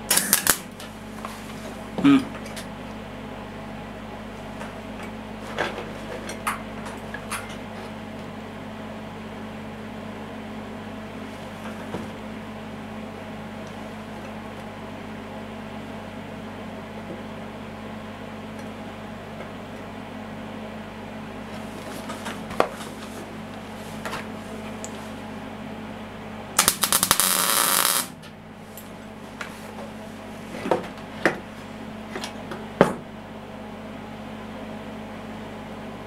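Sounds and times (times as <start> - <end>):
welding arc crackling: 0.0 - 0.8, 26.6 - 28.2
steady low hum: 0.0 - 36.0.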